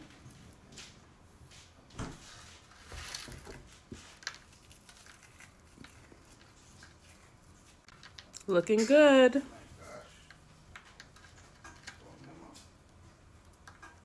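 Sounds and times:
cookie crumbs crunching: 2.4 - 8.6.

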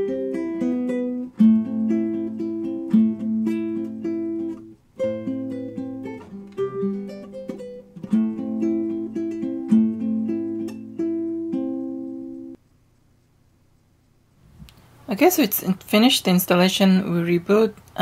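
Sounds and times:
fingerstyle acoustic guitar: 0.0 - 12.6.

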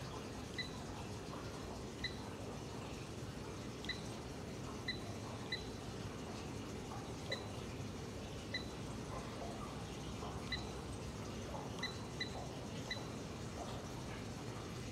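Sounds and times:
high electronic key beeps: 3.9 - 4.2, 4.8 - 5.8, 11.8 - 13.2.

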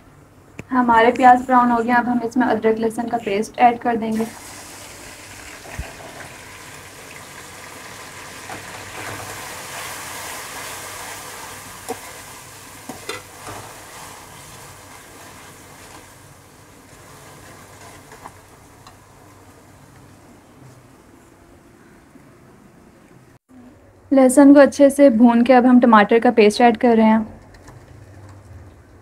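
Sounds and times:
paste sizzling in hot oil: 4.2 - 18.8.

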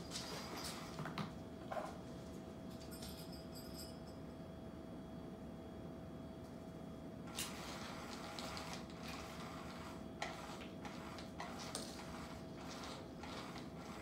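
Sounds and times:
plastic ball rolling on wood floor: 7.3 - 14.0.

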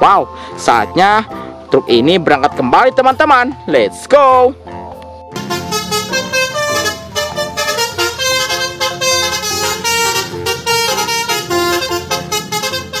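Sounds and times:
upbeat horn-like melody: 5.4 - 13.0.

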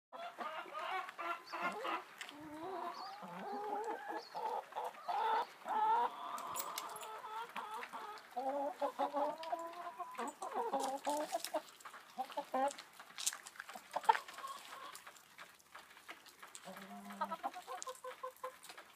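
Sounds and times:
hen long drawn-out calls: 0.2 - 12.8, 16.6 - 18.6
hens clucking: 0.2 - 18.9.

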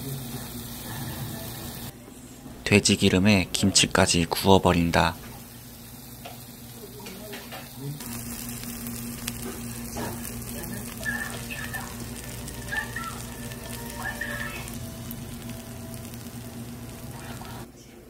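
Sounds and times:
meat sizzling on grill plate: 0.0 - 1.9, 4.8 - 17.7
low steady hum: 7.9 - 18.0.

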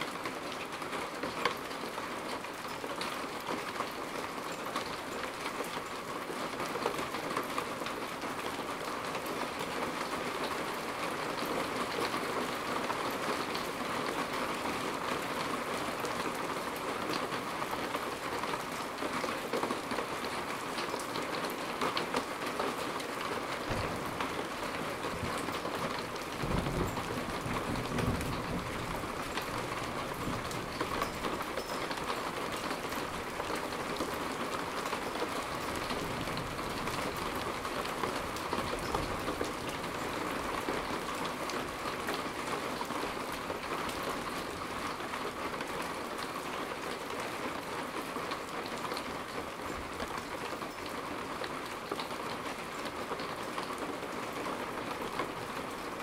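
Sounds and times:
steady rain falling: 0.0 - 56.0
low rumble of thunder: 23.7 - 30.9.

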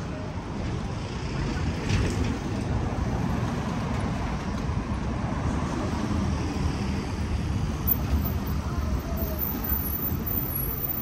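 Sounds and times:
rumble of passing traffic: 0.0 - 11.0.

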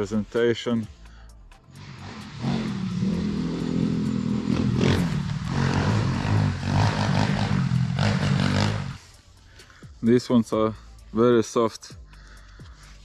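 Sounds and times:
motor engine humming: 1.8 - 9.2.

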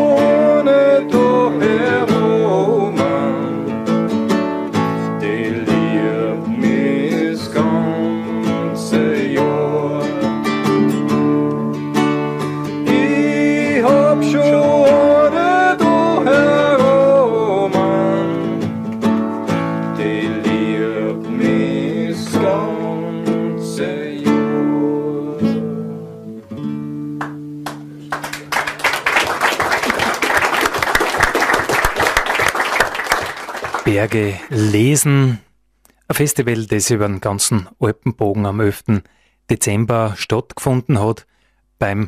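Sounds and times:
person singing: 0.0 - 4.1, 5.0 - 11.1, 12.6 - 19.0, 19.6 - 26.1
strummed acoustic guitar: 0.0 - 28.2
audience applause: 27.2 - 34.4.

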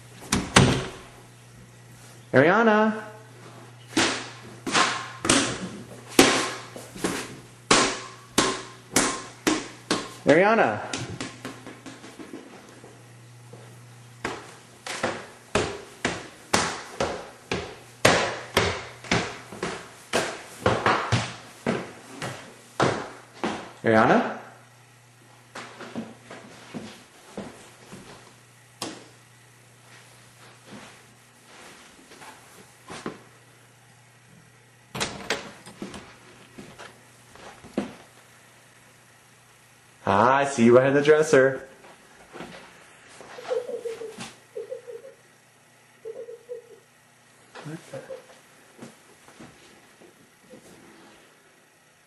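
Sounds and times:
faint steady hum: 0.0 - 52.0
footsteps going down stairs: 10.9 - 23.8, 25.5 - 29.1, 35.0 - 38.3, 41.8 - 44.4.

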